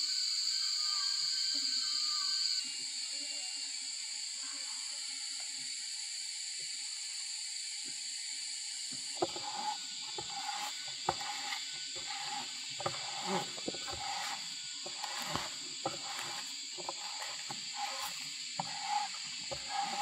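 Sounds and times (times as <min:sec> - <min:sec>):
high insect drone: 0:00.0 - 0:20.0
auger bit boring into wood: 0:09.2 - 0:20.0.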